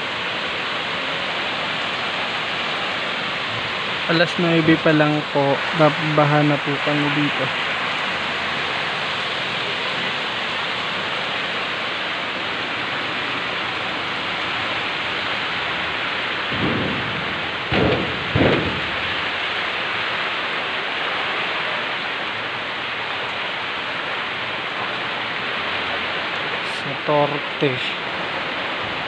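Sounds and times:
heavy rain pouring: 0:00.0 - 0:29.0
low thumps: 0:16.3 - 0:20.0.

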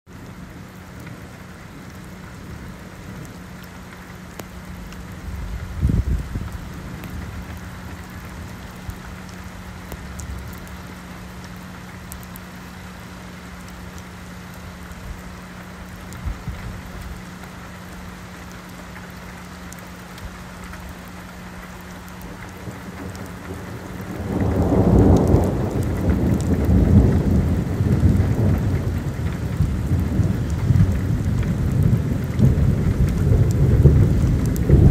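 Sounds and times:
rain on wet pavement: 0:00.1 - 0:34.9
thunder rumbling: 0:04.3 - 0:12.3, 0:21.8 - 0:34.9.

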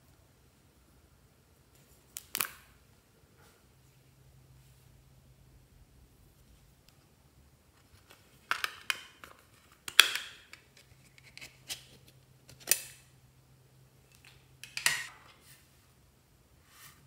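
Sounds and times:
metal tin lids clicking: 0:14.6 - 0:15.1.

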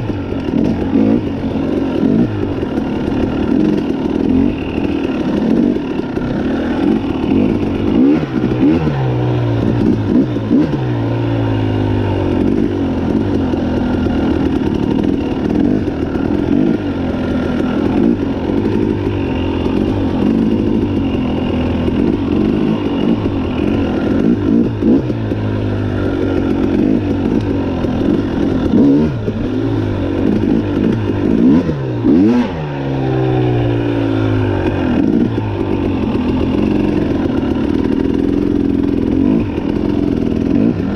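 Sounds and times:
dirt bike engine revving: 0:00.0 - 0:40.9.

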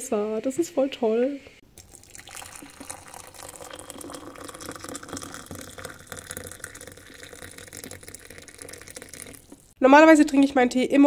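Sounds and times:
water pouring into mug: 0:01.7 - 0:09.8.

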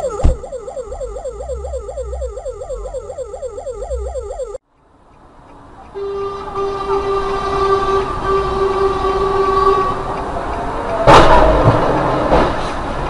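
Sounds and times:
train horn blast: 0:06.0 - 0:10.1.

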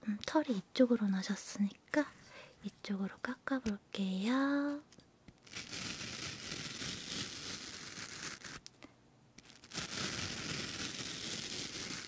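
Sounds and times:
razor scraping close to microphone: 0:05.4 - 0:08.7, 0:09.4 - 0:12.0.

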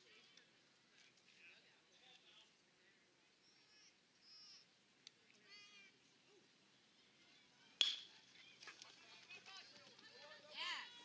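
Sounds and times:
metal bat hitting ball: 0:07.8 - 0:08.1.

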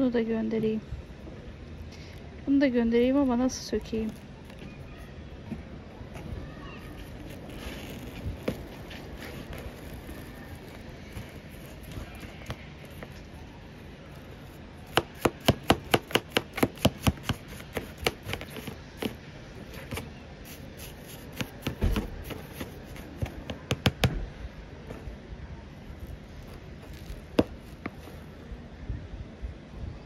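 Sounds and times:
dull thump: 0:21.3 - 0:24.3.

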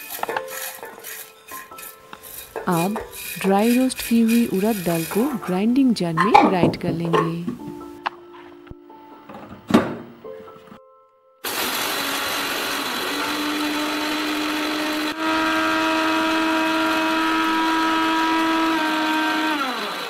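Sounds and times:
mixer grinder grinding: 0:00.0 - 0:05.8, 0:11.4 - 0:20.0.

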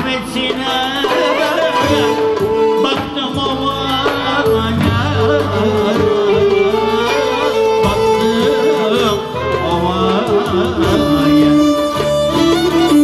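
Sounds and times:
drum beating: 0:00.0 - 0:13.0
man singing into a microphone: 0:00.0 - 0:13.0
violins and clarinet melody: 0:05.8 - 0:13.0.

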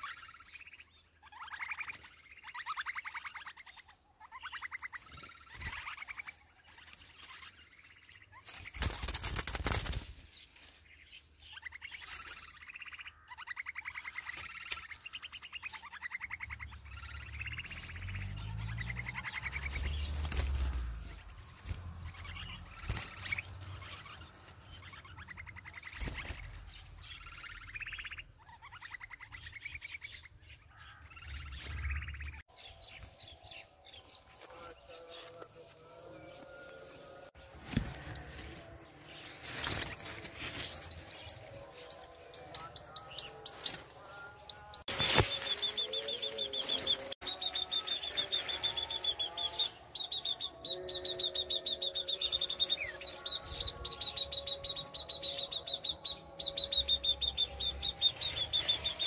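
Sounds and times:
nestlings buzzy begging chirps: 0:39.5 - 0:43.9.

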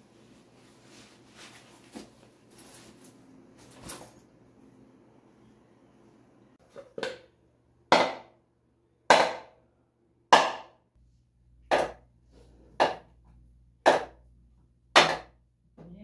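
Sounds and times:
hammer striking hard surface: 0:07.9 - 0:08.3, 0:09.1 - 0:09.5, 0:10.3 - 0:10.8, 0:13.8 - 0:14.2, 0:14.9 - 0:15.4.

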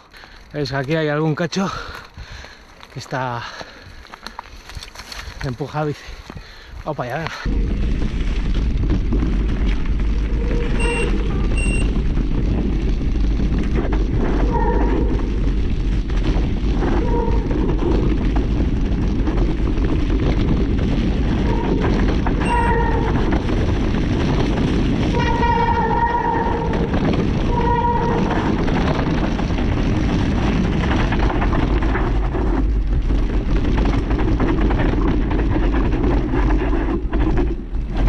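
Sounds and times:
tyres rumbling on dirt: 0:00.0 - 0:38.0
wind buffeting microphone: 0:04.6 - 0:38.0
short high-pitched squeals: 0:10.3 - 0:12.0, 0:22.4 - 0:23.2, 0:25.2 - 0:26.9.

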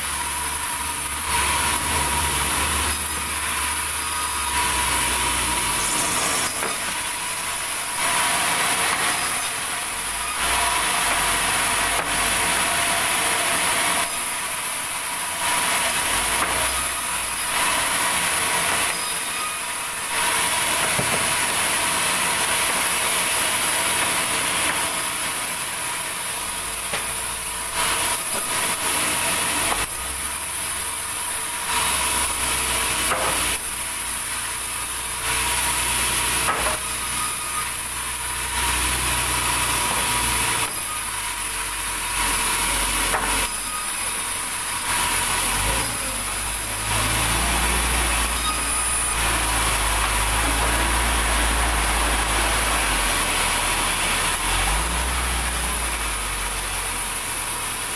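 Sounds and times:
saw motor hum: 0:00.0 - 0:57.9
band saw blade cutting wood: 0:00.4 - 0:14.7, 0:31.5 - 0:56.2.

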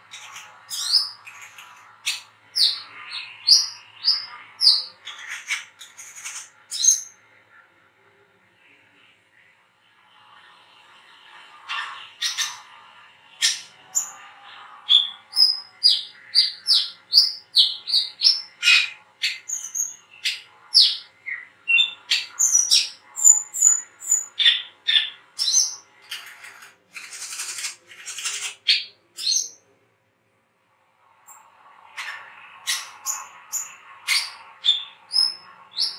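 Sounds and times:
bird twittering high chirps: 0:00.1 - 0:07.1, 0:32.7 - 0:35.9.

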